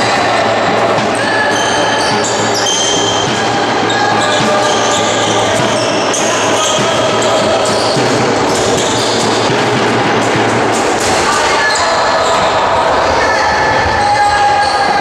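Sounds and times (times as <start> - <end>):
loud din in sports hall: 0.0 - 15.0
shoes squeaking on floor: 0.9 - 12.6.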